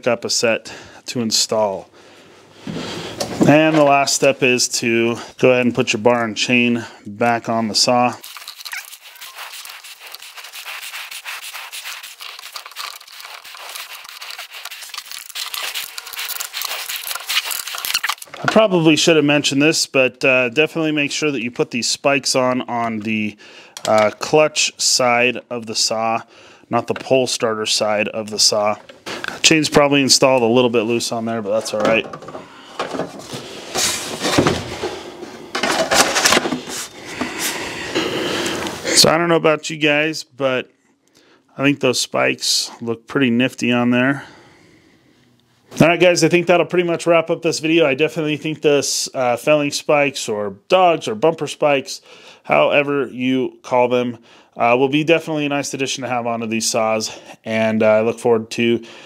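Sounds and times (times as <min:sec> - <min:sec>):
plastic scraping and rattling: 0:35.5 - 0:36.8.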